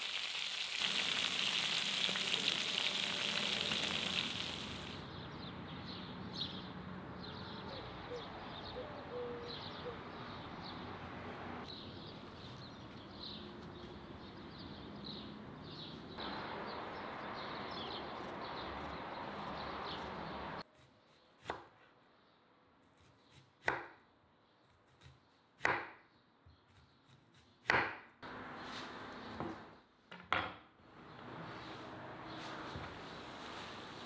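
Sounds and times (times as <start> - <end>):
birds chirping: 0.9 - 21.4.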